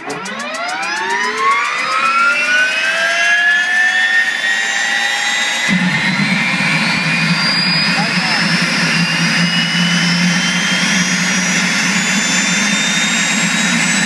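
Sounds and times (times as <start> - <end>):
turbine whine rising in pitch: 0.0 - 14.0
low rumble: 5.7 - 14.0.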